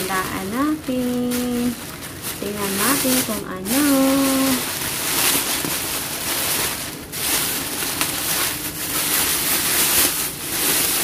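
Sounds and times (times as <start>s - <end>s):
plastic bags rustling and crinkling: 0.0s - 11.0s.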